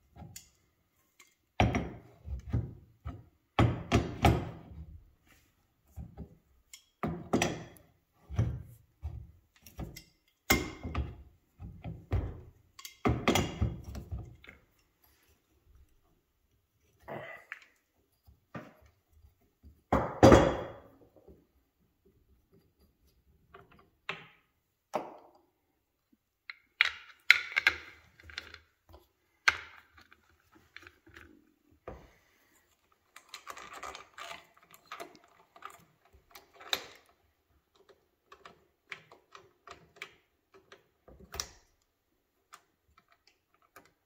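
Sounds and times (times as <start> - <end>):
small parts clicking and clattering: 0.1 - 1.6, 6.3 - 7.9, 9.4 - 11.2, 12.5 - 16.0, 26.4 - 31.8, 32.5 - 44.0.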